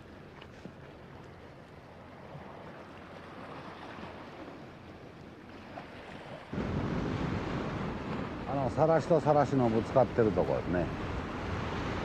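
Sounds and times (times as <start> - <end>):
surf washing: 0.0 - 12.0
wind on microphone: 6.5 - 9.0, 10.7 - 12.0.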